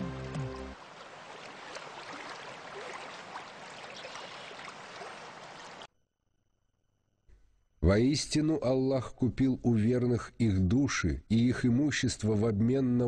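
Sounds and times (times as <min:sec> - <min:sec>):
running water: 0:00.0 - 0:05.9.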